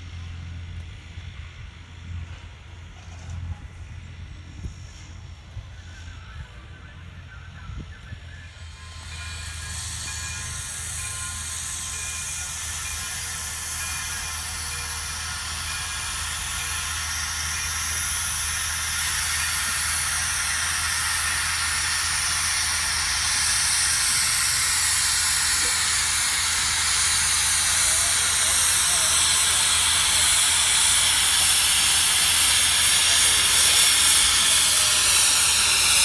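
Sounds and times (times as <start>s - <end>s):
train low rumble: 0.0s - 36.0s
steam hissing: 4.0s - 36.0s.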